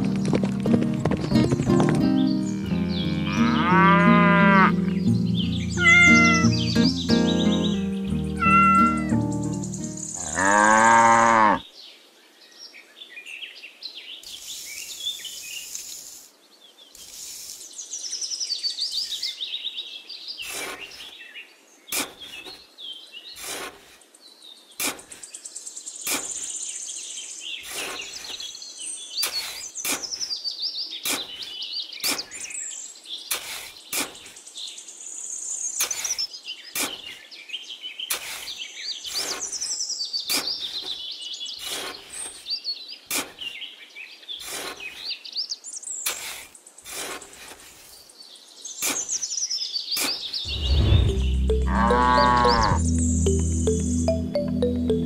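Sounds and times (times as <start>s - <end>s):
birds chirping: 0.0s - 11.6s, 50.3s - 55.0s
cow mooing: 2.6s - 4.8s, 10.2s - 11.6s, 51.6s - 52.8s
trowel scraping damp sand: 20.4s - 21.1s, 21.9s - 22.5s, 23.4s - 24.0s, 24.8s - 25.3s, 26.1s - 26.5s, 27.6s - 28.5s, 29.2s - 30.3s, 33.3s - 34.4s, 36.8s - 37.2s, 38.1s - 39.6s, 41.6s - 42.4s, 43.1s - 43.4s, 44.4s - 45.0s, 46.0s - 47.9s.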